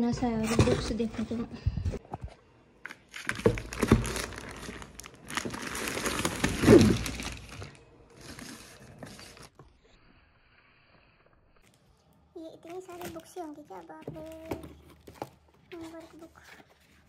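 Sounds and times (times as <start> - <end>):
packaging crinkling and rustling: 2.8 - 9.6, 12.6 - 17.0.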